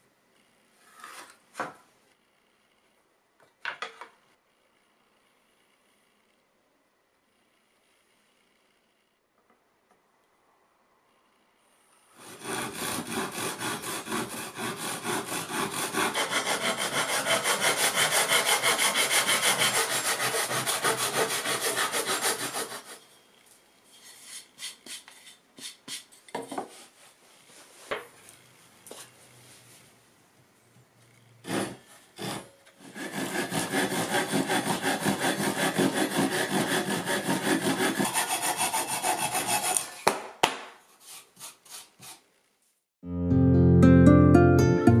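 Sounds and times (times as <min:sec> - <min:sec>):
hand saw cutting wood: 0:12.2 - 0:23.0, 0:31.4 - 0:40.1, 0:40.9 - 0:42.2.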